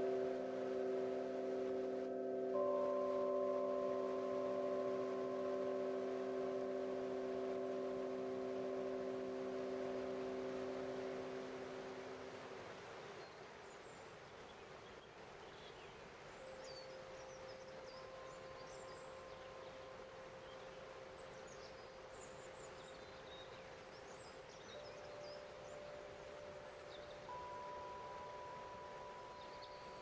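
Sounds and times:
crystal harp tones: 0:00.0 - 0:12.4, 0:16.5 - 0:30.0
small birds chirping: 0:13.0 - 0:30.0.

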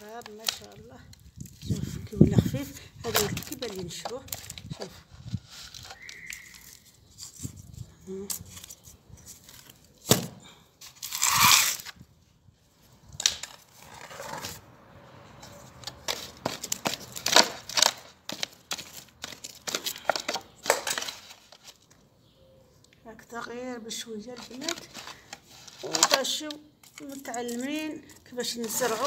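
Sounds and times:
plastic sack rustling: 0:28.4 - 0:29.0.

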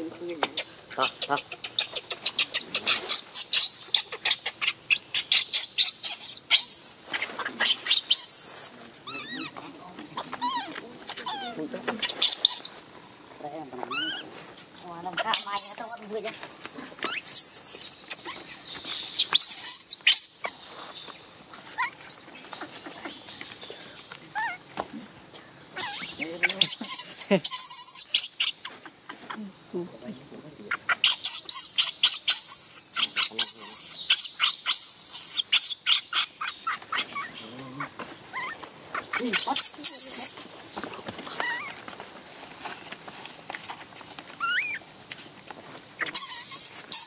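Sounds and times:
monkey squeaks and chirps: 0:00.5 - 0:09.6, 0:10.2 - 0:12.8, 0:13.9 - 0:14.3, 0:15.2 - 0:16.2, 0:17.0 - 0:21.0, 0:21.7 - 0:23.7, 0:25.8 - 0:28.9, 0:30.7 - 0:40.4, 0:41.4 - 0:41.8, 0:44.4 - 0:44.8, 0:46.0 - 0:47.0.

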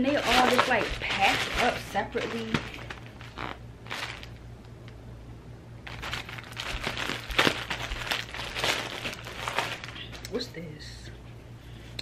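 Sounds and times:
plastic bag crinkling and rustling: 0:00.0 - 0:04.4, 0:05.8 - 0:10.2.

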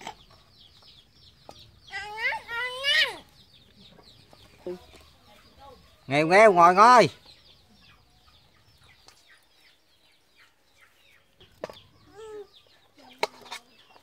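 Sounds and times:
chicks peeping: 0:00.0 - 0:14.0
chicken clucking: 0:07.4 - 0:14.0.

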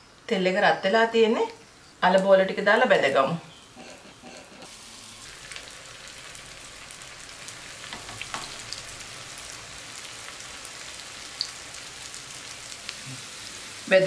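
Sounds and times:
food deep-frying in oil: 0:00.2 - 0:14.0.

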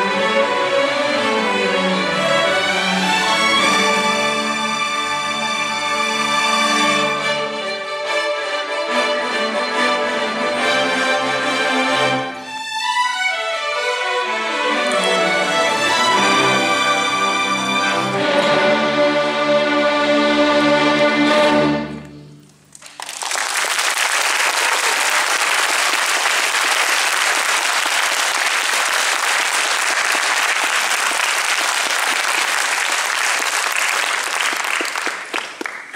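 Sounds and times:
audience applause: 0:22.6 - 0:35.9.

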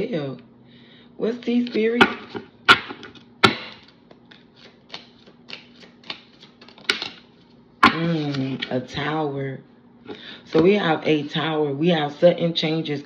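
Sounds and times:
cards being shuffled: 0:01.4 - 0:08.7
sharp card snaps: 0:02.0 - 0:07.3.

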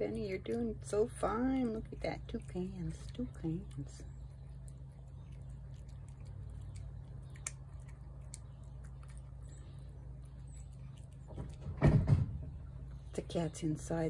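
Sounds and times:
steady low hum: 0:00.0 - 0:14.0
cat chewing wet food: 0:01.4 - 0:11.8.

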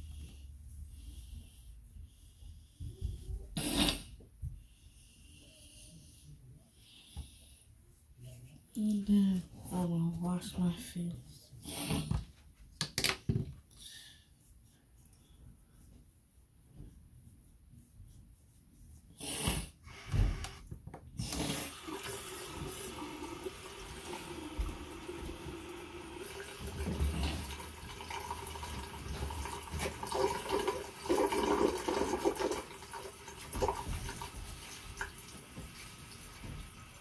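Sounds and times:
tap water splashing into sink: 0:21.8 - 0:36.9.

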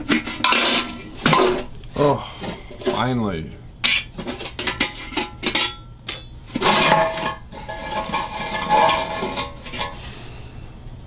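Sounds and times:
wood scraping against metal shell: 0:00.0 - 0:01.7, 0:03.8 - 0:10.2.

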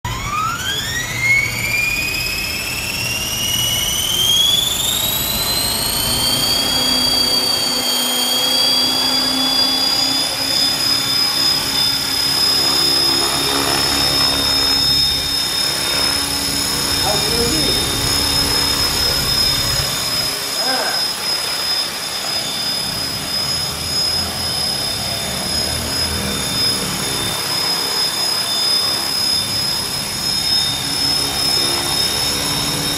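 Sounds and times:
rc helicopter motor whine: 0:00.1 - 0:32.9.

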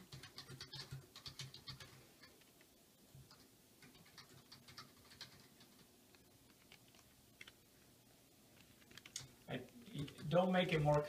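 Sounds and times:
typing on computer keyboard: 0:00.0 - 0:02.4, 0:03.3 - 0:05.9.

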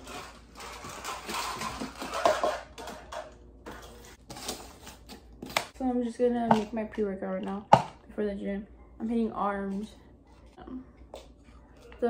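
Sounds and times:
plastic containers clattering: 0:00.0 - 0:05.6.

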